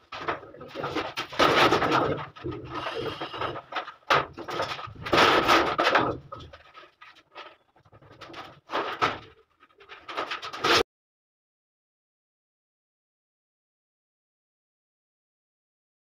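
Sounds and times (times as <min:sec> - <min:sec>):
wires rasping through conduit: 0:00.0 - 0:10.8.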